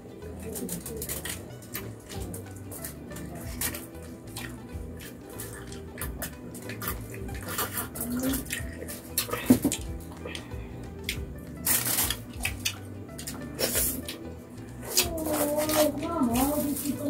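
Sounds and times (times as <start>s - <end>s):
wet chewing mouth clicks: 0.8s - 14.2s
person gulping a drink: 5.4s - 11.3s.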